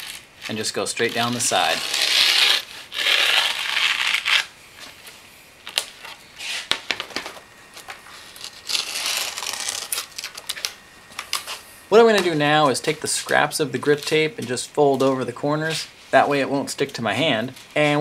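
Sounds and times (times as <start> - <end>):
grip tape scratches and clicks: 0.0 - 4.5, 8.2 - 11.6
razor blade slicing grip tape: 0.0 - 4.5, 8.2 - 11.6.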